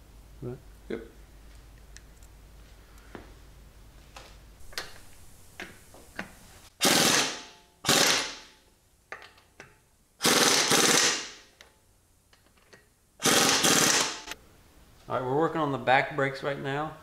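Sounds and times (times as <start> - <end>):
impact wrench hammering: 6.8 - 8.5, 10.2 - 11.5, 13.2 - 14.4.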